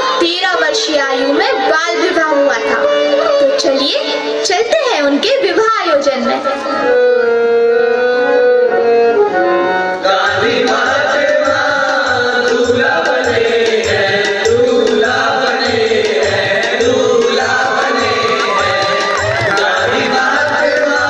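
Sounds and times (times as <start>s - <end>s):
wedding music over sound system: 0.0s - 21.0s
steady drum beat: 11.5s - 21.0s.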